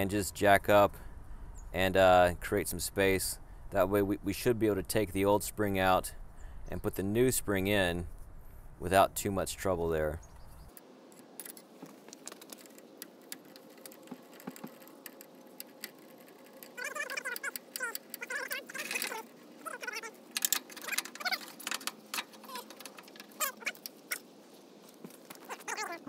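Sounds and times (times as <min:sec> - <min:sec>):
tools clicking and knocking: 0:10.7 - 0:24.3.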